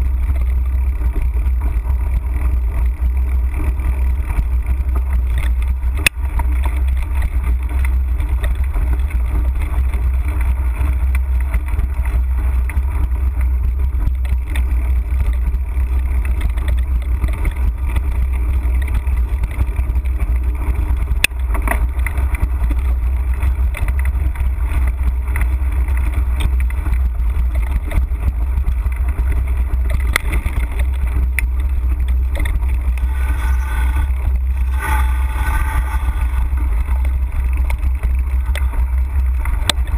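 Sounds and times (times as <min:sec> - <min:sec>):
wind buffeting microphone: 0:32.7 - 0:39.7.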